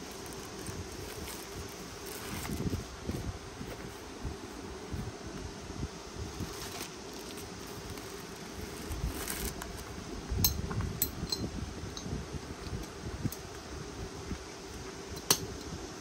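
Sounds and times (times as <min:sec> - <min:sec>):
bag rubbing and rustling: 0:00.0 - 0:05.5, 0:06.1 - 0:10.0
steady low hum: 0:00.0 - 0:16.0.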